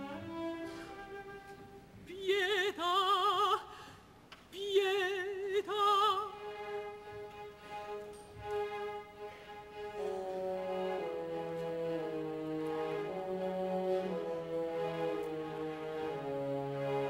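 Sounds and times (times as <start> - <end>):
soft orchestral strings: 0.0 - 2.6, 5.1 - 17.0
operatic soprano singing: 2.1 - 3.7, 4.5 - 6.4.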